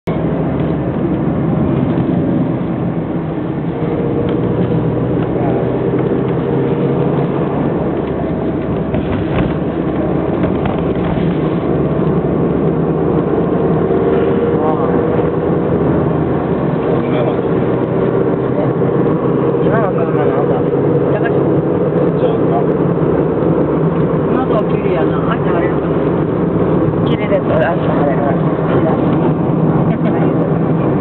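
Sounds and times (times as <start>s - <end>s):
car engine hum: 0.0s - 31.0s
road noise: 0.0s - 31.0s.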